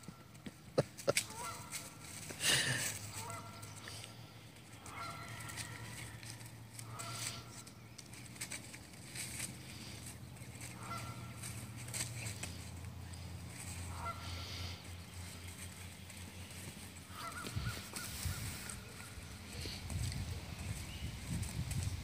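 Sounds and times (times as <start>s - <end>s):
dry leaves rustling and crunching: 0.3s - 22.0s
puppy scrabbling in leaves: 4.9s - 22.0s
short honking calls: 10.8s - 11.6s, 13.9s - 14.9s, 17.0s - 18.4s.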